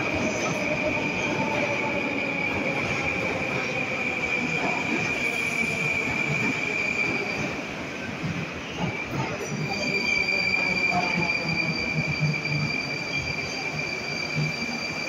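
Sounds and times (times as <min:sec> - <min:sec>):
train wheels squealing: 0:00.2 - 0:07.6, 0:08.6 - 0:15.0
higher wheel squeal: 0:09.5 - 0:15.0.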